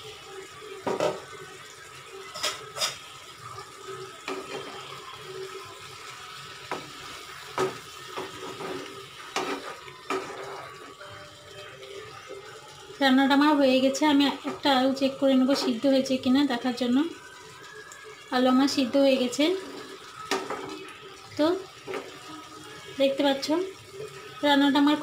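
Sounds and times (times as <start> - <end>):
spatula stirring and scraping curry: 6.7 - 11.0.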